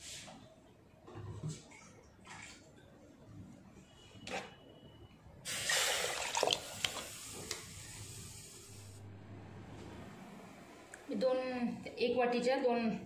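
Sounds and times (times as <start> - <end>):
water pouring and splashing: 5.5 - 7.6.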